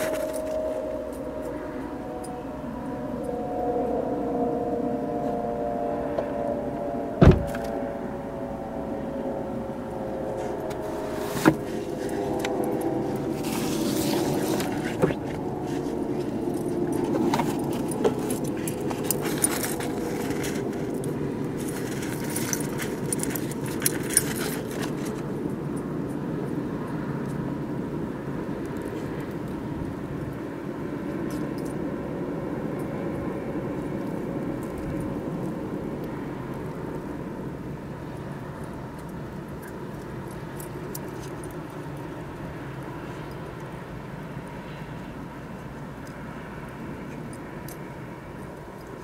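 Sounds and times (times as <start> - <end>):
low outdoor rumble: 0.0 - 49.0
jingling and clicking: 16.2 - 25.3.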